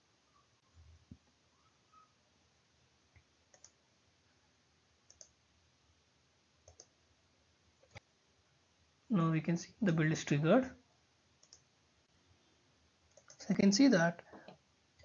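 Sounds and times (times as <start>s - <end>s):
computer mouse clicks: 3.1s - 3.8s, 5.1s - 5.4s, 6.6s - 6.9s, 11.4s - 11.7s, 13.1s - 13.5s.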